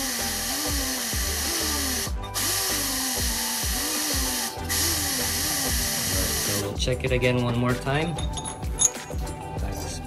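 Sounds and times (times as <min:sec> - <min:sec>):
pneumatic angle grinder hissing: 0:00.0 - 0:06.7
background music with a beat: 0:00.0 - 0:10.0.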